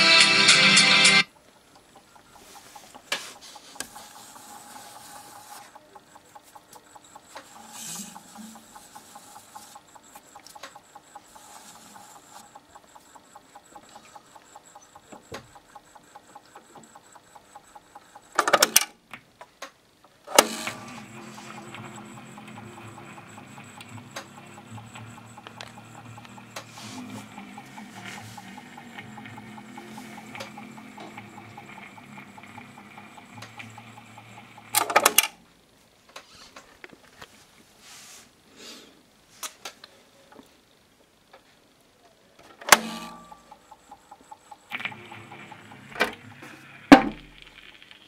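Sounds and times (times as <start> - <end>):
steady hum with held tones: 0.0 - 48.0
stylus ticking on plastic disc: 1.4 - 18.8, 20.6 - 35.4, 42.7 - 48.0.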